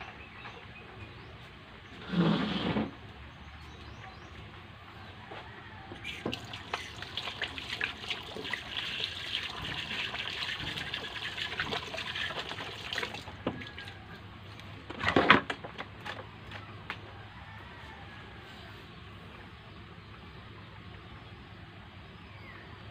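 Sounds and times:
water running and splashing: 6.0s - 14.1s.

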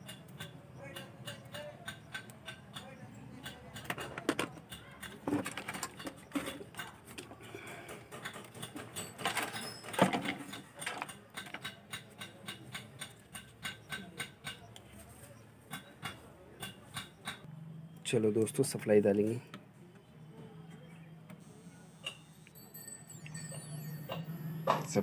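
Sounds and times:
steady light ticks: 0.0s - 5.2s, 11.1s - 14.9s
handling circuit board and wiring: 0.0s - 17.4s.

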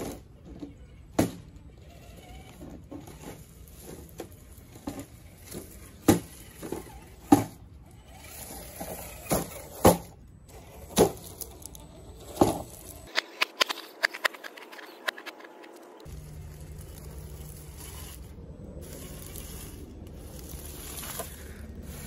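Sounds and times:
toy car knocking down steps: 0.0s - 15.4s.

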